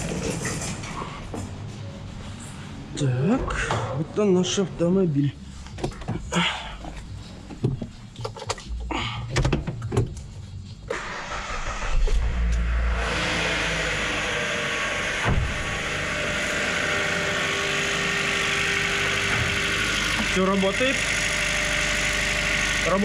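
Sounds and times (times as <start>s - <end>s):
car engine starting and idling: 7.8s - 23.0s.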